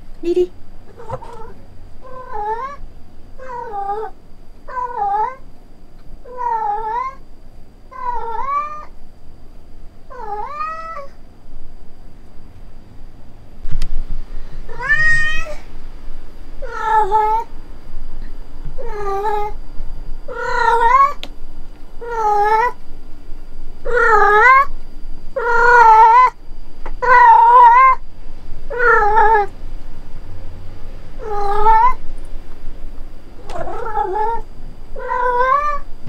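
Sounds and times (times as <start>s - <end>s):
cat meowing loudly: 14.7s - 15.6s, 25.4s - 26.4s, 28.7s - 29.5s, 31.2s - 32.0s, 33.4s - 35.9s.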